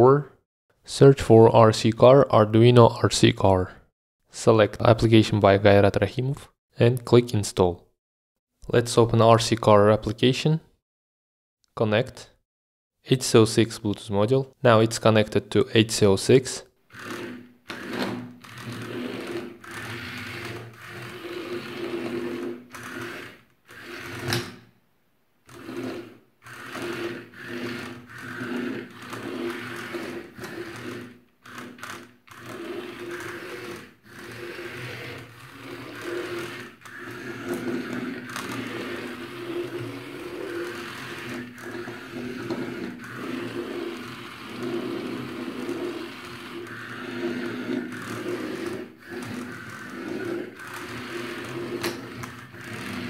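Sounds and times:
small motors whirring: 16.9s - 24.5s, 25.5s - 53.0s.

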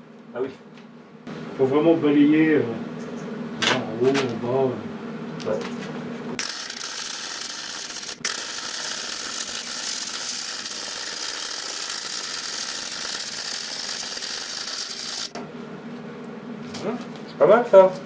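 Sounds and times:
welding arc crackling and hissing: 6.4s - 15.4s.

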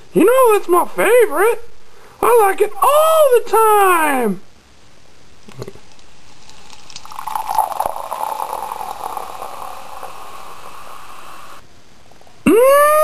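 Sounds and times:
coffee pouring into a cup: 6.2s - 11.3s.

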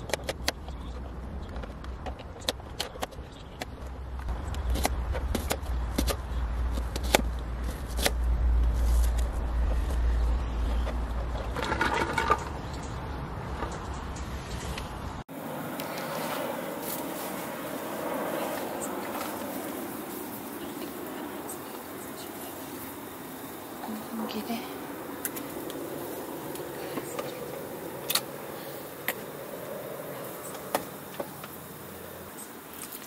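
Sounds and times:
low rumble: 7.3s - 14.2s.

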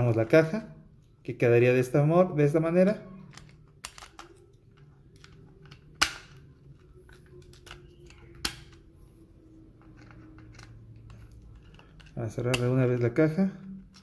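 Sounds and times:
plastic parts clicking and rattling: 3.2s - 8.9s, 9.6s - 14.0s
sharp plastic snaps: 5.2s - 6.5s, 7.4s - 8.8s.

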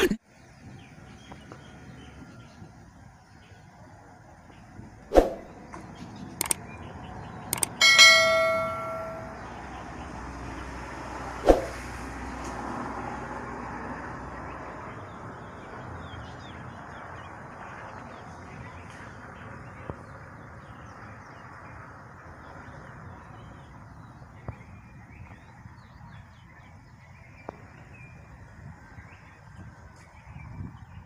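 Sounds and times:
small birds chirping: 0.2s - 10.7s, 14.2s - 31.0s
sharp clicks: 6.4s - 6.6s, 7.5s - 8.0s.

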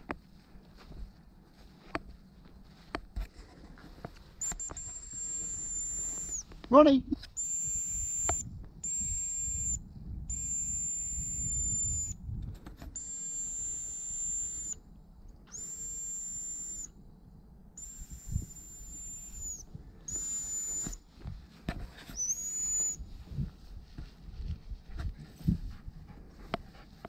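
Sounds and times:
dog whistle blasts: 4.4s - 6.4s, 7.3s - 12.2s, 13.0s - 14.8s, 15.5s - 16.9s, 17.8s - 21.0s, 22.2s - 23.0s
wind rumble on microphone: 4.8s - 13.0s, 17.0s - 27.0s.

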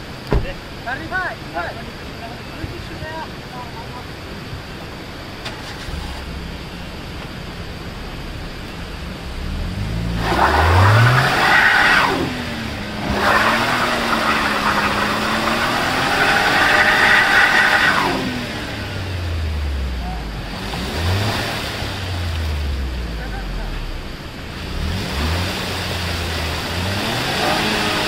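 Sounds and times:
wheels spinning in mud: 5.4s - 18.7s
car engine revving hard: 5.4s - 28.0s.

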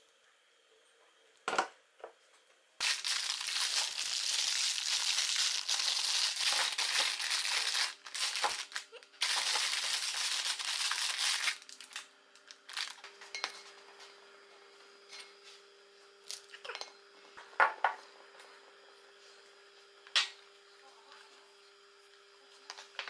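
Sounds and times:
plastic packaging crinkling: 2.8s - 13.1s.

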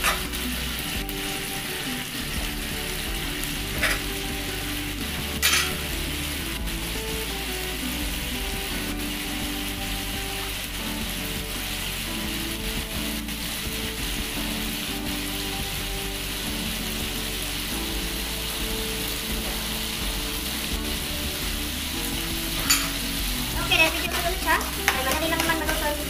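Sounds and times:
fish sizzling in a frying pan: 0.0s - 26.0s.

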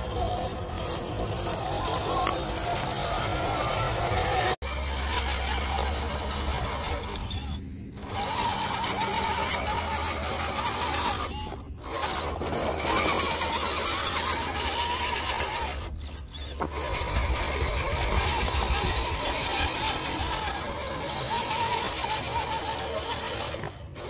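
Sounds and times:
electric motor whining: 0.0s - 24.0s.

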